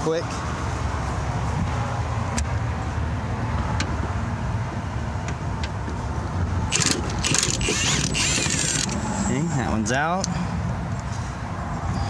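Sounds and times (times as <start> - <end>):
impact wrench hammering rattle: 6.7 - 9.0.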